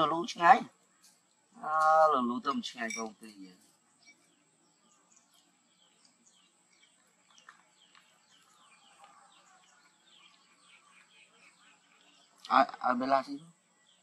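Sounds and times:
small bird chirps: 0:02.4 - 0:14.0
thin high-pitched tone: 0:02.8 - 0:03.4.

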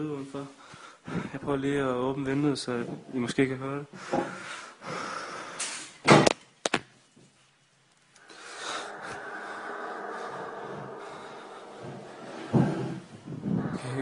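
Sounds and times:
steady drone with held tones: 0:08.2 - 0:14.0.

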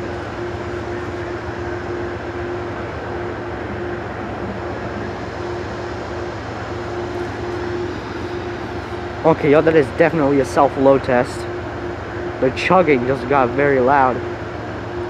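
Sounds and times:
diesel locomotive engine drone: 0:00.0 - 0:15.0
held tone: 0:00.0 - 0:15.0.

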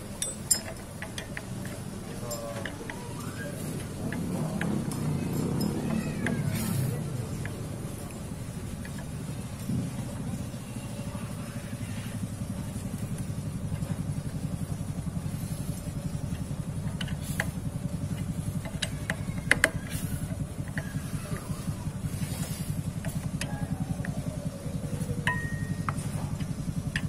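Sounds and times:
engine idling: 0:00.0 - 0:27.0
socket wrench clicking on metal: 0:00.2 - 0:03.1, 0:18.2 - 0:21.5.

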